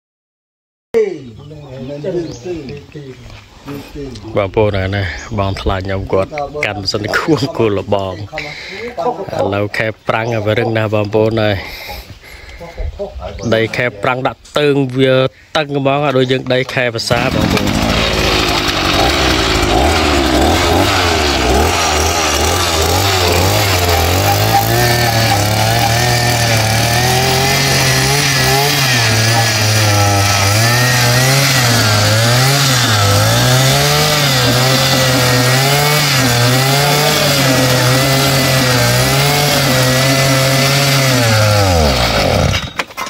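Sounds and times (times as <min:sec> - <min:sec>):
earth auger engine boring soil: 0:16.7 - 0:43.0.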